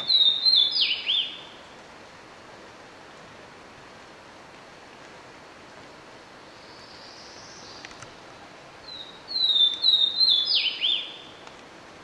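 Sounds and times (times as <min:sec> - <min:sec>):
bird singing whistles: 0:00.0 - 0:01.4, 0:08.9 - 0:11.2
steady hiss: 0:00.0 - 0:12.0.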